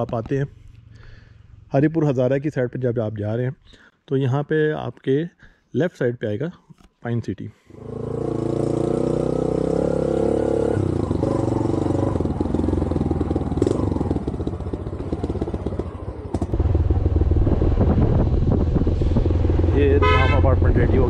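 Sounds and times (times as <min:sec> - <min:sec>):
motorcycle engine running: 0:08.0 - 0:21.0.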